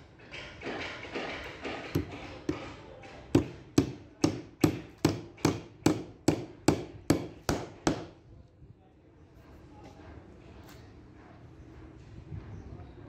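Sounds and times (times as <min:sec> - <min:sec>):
hammer hitting nail into wood: 0:01.6 - 0:08.2.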